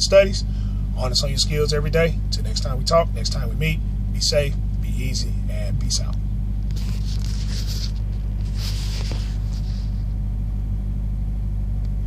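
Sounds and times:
diesel truck engine idling: 0.0s - 12.0s
phone rustling: 6.6s - 10.2s.

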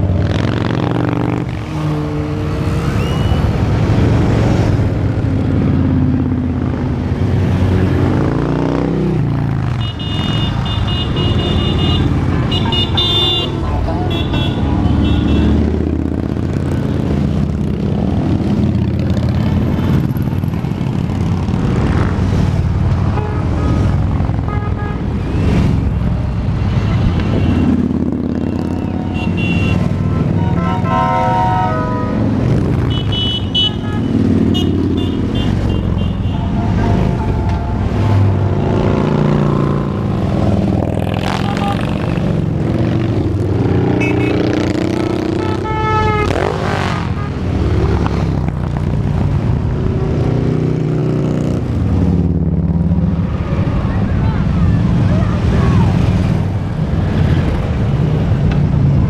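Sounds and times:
motorcycles rumbling past: 0.0s - 10.8s, 14.6s - 23.1s, 25.1s - 30.5s, 34.0s - 59.0s
motorcycle horn toots: 9.8s - 15.6s, 23.1s - 25.0s, 28.9s - 37.9s, 41.3s - 42.0s, 43.9s - 44.5s, 45.3s - 46.5s.

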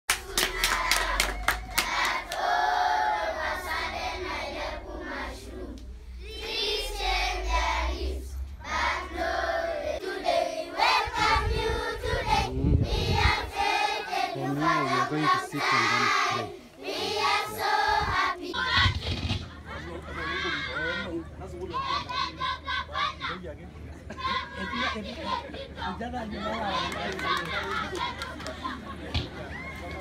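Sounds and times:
handclaps: 0.1s - 2.5s, 26.9s - 29.3s
low steady rumble: 0.1s - 14.4s
children singing together: 0.1s - 19.4s.

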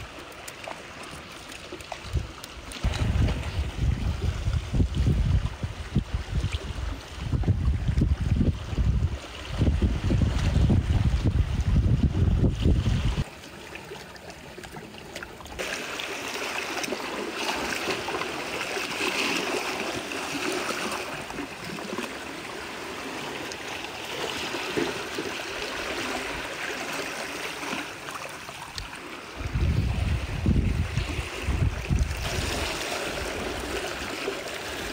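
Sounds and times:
seawater running among rocks: 0.0s - 34.9s
wind buffeting microphone: 2.0s - 13.3s, 29.4s - 34.1s.

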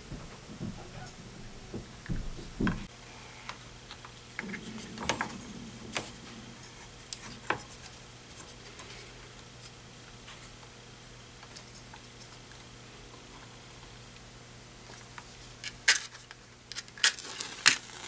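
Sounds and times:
soft bump: 0.0s - 2.9s.

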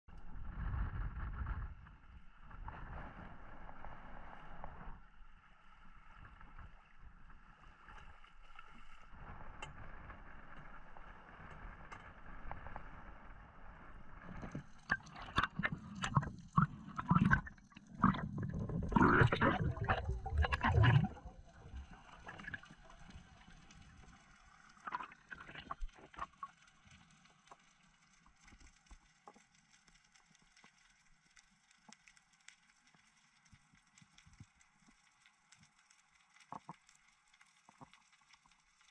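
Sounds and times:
sea water sloshing and splashing: 14.3s - 27.5s.

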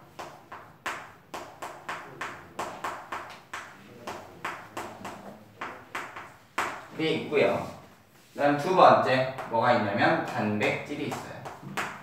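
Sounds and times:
chalk tapping on chalkboard: 0.0s - 7.0s, 7.7s - 12.0s.

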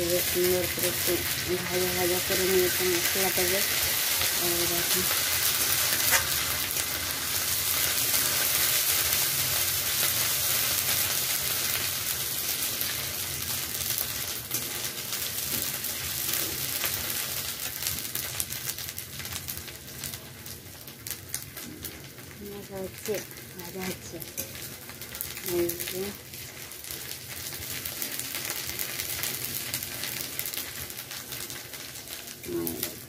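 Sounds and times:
onions sizzling in oil: 0.0s - 33.0s.

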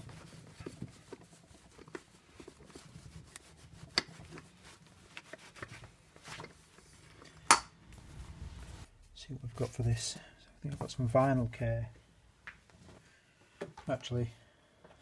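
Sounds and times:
cloth rubbing metal: 7.8s - 10.1s.

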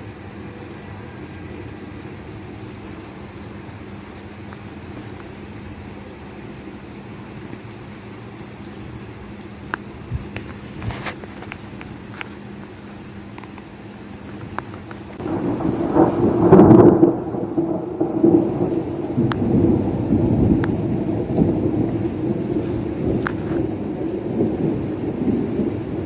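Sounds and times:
rain falling: 0.0s - 26.0s
raindrops ticking: 0.0s - 26.0s
thunder rumbling: 9.1s - 26.0s.

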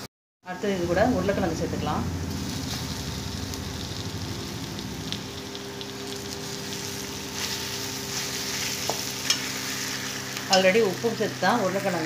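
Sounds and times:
food sizzling in hot oil: 0.5s - 12.0s
metal turner scraping a pan: 7.4s - 10.6s.

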